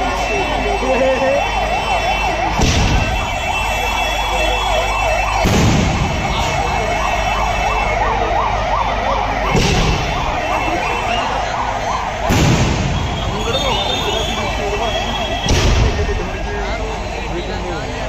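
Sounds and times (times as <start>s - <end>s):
siren yelping: 0.0s - 16.0s
firework booms: 2.5s - 3.6s, 5.3s - 6.8s, 9.5s - 10.5s, 12.1s - 13.9s, 15.3s - 16.4s.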